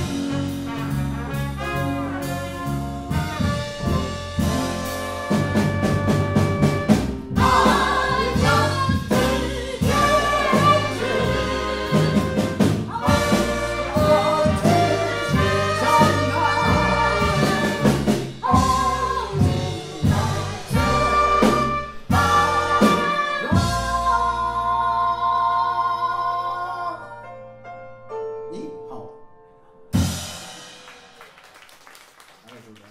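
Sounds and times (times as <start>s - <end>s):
jazz band playing swing: 0.0s - 25.6s
drum beat: 3.1s - 23.9s.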